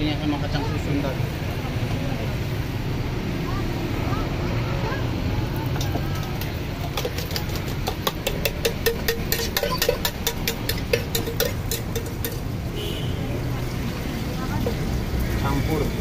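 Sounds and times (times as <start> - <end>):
low rumble of food stall: 0.0 - 16.0
utensil clinking metal mug: 5.8 - 12.6.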